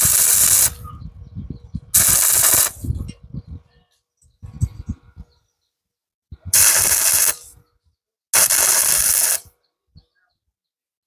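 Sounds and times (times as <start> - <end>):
welding arc buzzing: 0.0 - 0.8, 2.0 - 2.8, 6.5 - 7.5, 8.4 - 9.5.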